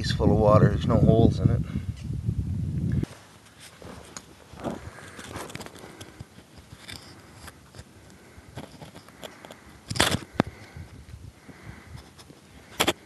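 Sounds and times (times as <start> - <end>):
scrapes on gravel: 3.0 - 7.4.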